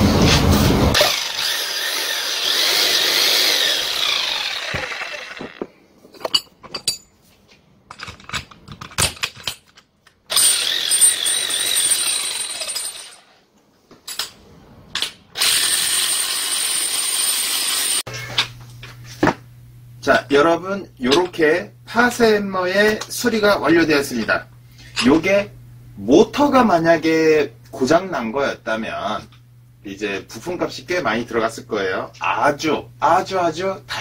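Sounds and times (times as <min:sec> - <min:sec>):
demolition hammer motor whining: 0:00.7 - 0:05.8, 0:10.3 - 0:13.2.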